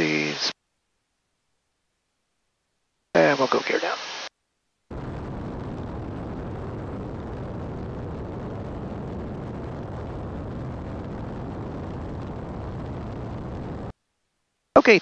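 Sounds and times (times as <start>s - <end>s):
wind and aircraft engine rush: 4.9s - 13.9s.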